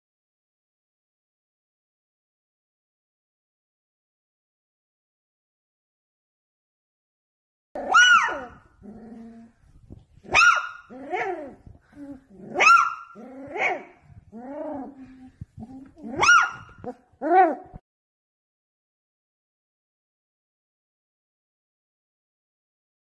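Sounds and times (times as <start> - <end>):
puppy howling: 7.8 - 9.2, 16.0 - 17.8.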